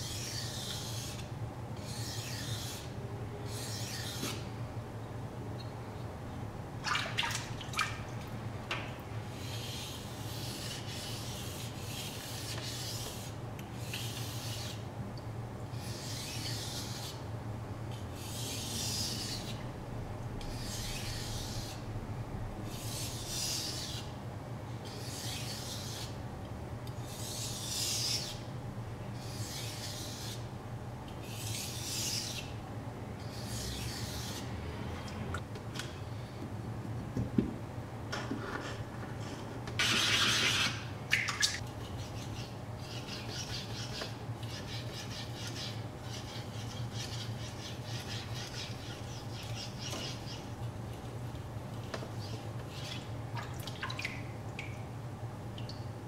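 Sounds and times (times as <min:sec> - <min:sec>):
knife scraping on whetstone: 0:41.8 - 0:50.5.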